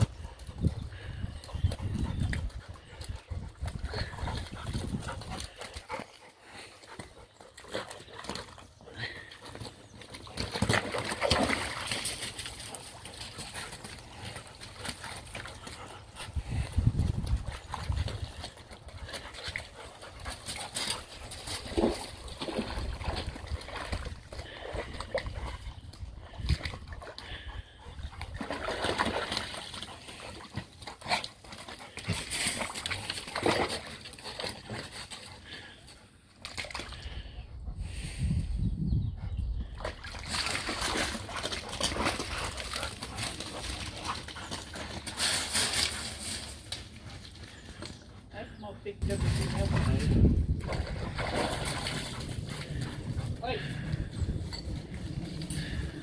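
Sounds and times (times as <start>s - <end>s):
water splashing and sloshing: 0.0s - 37.4s, 39.6s - 47.9s, 49.0s - 56.0s
dogs scrambling on gravel: 3.7s - 25.5s, 28.5s - 35.7s, 40.2s - 48.1s
water splashing: 49.0s - 53.8s.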